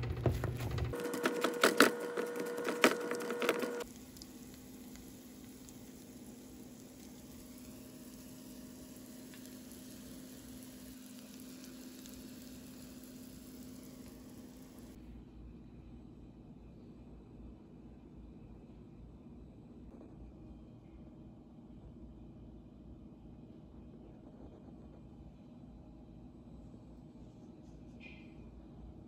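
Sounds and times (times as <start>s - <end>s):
potato masher squishing potatoes: 0.0s - 14.8s.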